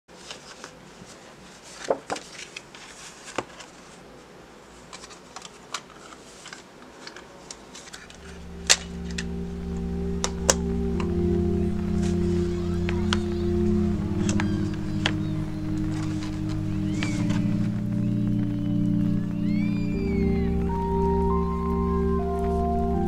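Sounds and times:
background music: 8.1 - 23.0.

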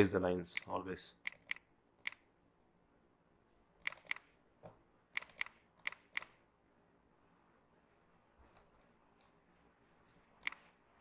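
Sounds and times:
computer mouse clicking: 0.5 - 2.2, 3.8 - 4.4, 5.1 - 6.4, 10.4 - 10.7.

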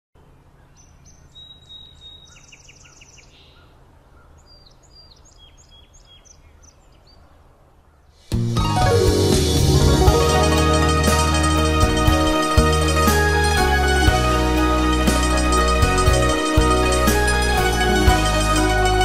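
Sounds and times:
songbirds chirping: 0.2 - 9.0
bird trill: 0.7 - 7.3.

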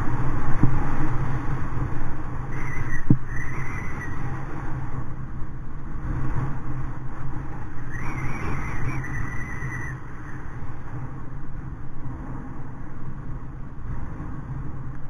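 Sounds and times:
wind buffeting microphone: 0.0 - 15.0
thin high whine: 7.2 - 11.4.

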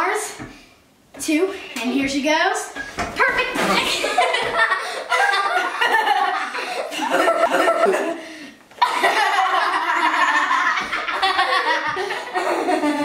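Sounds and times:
girls laughing: 3.5 - 8.2, 8.8 - 13.0.

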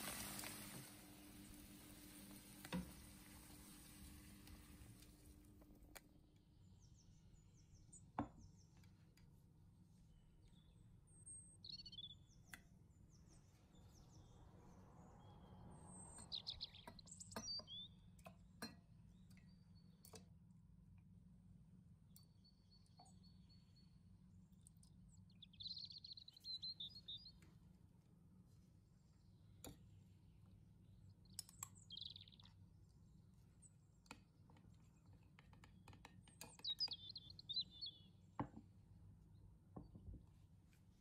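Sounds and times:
small birds twittering: 10.1 - 18.2, 22.1 - 27.5, 29.0 - 33.0, 36.0 - 38.3.

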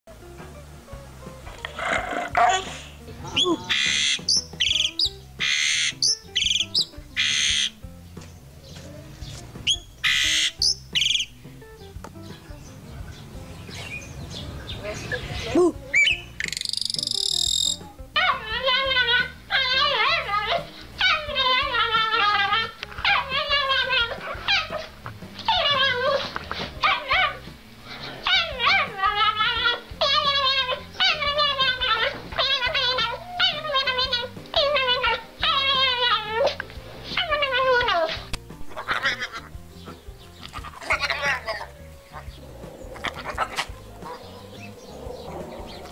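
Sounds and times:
faint background music: 0.1 - 45.9
starling harsh rasping calls: 1.6 - 7.9, 9.2 - 11.5, 12.5 - 45.9
bird short whistles: 16.0 - 17.8
small dog howling and whining: 18.2 - 24.9, 25.5 - 27.4, 28.2 - 38.2.

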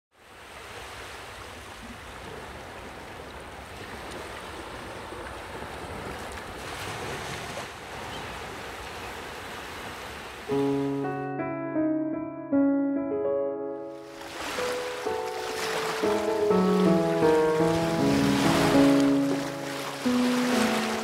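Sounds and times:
sea waves washing: 0.2 - 11.1, 13.8 - 21.0
piano music: 10.5 - 21.0.

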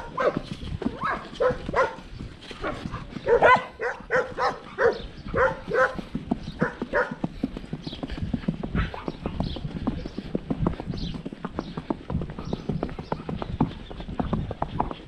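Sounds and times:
dog barking: 0.0 - 2.0, 2.6 - 6.0, 6.6 - 7.2, 8.8 - 9.1
horse hooves clip-clopping on dirt: 0.0 - 15.0.

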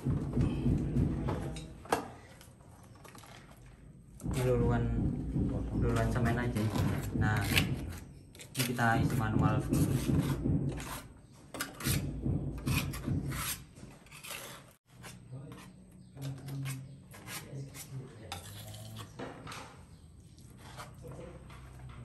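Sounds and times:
trowel scraping cement on tile: 6.0 - 19.2, 20.3 - 21.8.

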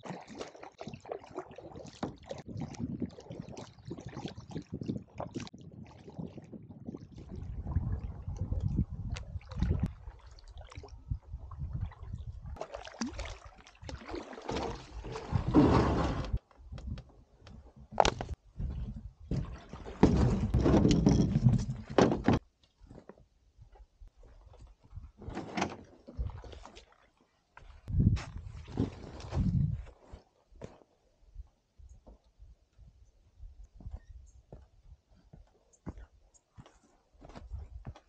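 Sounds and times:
water splashing: 0.0 - 16.1
knocks and scrapes on canoe hull: 14.5 - 17.0, 17.8 - 23.1, 25.2 - 26.6.

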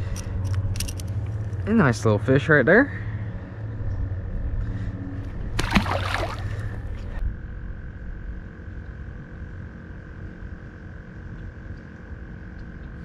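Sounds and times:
fish splashing into water: 5.6 - 6.8.

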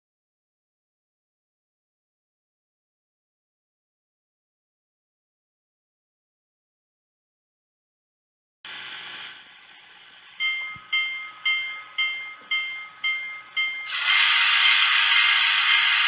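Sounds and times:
locomotive bell ringing: 10.4 - 16.0
loud hiss of steam: 13.8 - 16.0.

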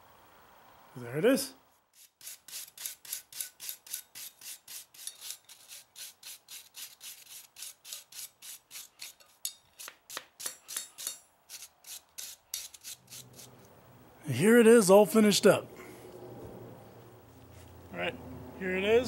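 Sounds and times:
abrasive block rasping on steel: 2.0 - 13.6.

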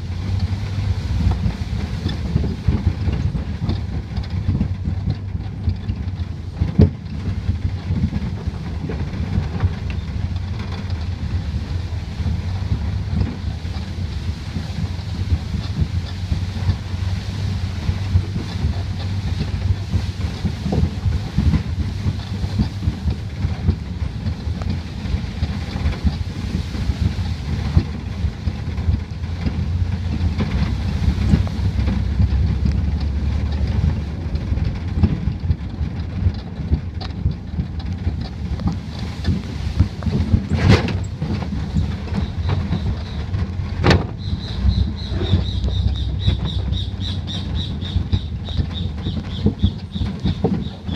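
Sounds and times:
truck rumbling on dirt road: 0.0 - 50.9
wind buffeting microphone: 0.0 - 50.9.

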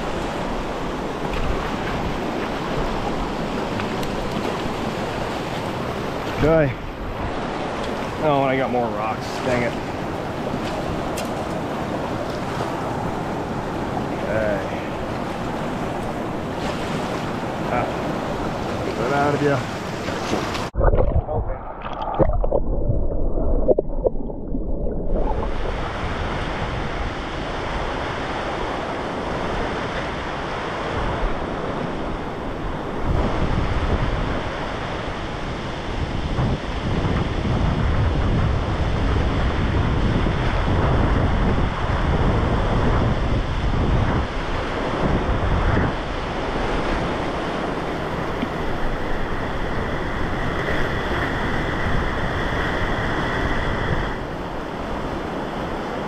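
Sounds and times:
muffled underwater sound: 20.8 - 25.9.

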